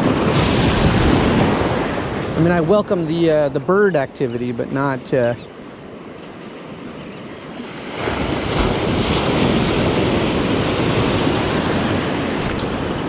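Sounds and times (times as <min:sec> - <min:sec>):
wave breaking on beach: 0:00.0 - 0:04.0, 0:07.5 - 0:13.0.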